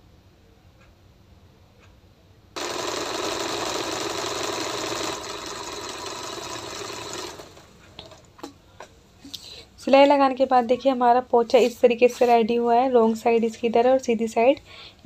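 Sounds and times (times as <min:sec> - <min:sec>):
electric sewing machine running: 0:02.6 - 0:08.3.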